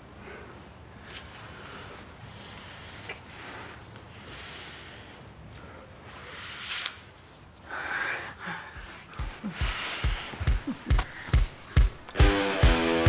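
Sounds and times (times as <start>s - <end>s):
people kissing: 6.3s - 7.1s.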